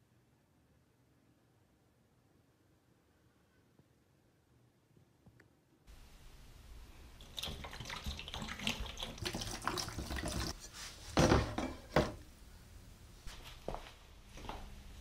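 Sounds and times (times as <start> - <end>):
liquid pouring from plastic jug: 7.2 - 10.6.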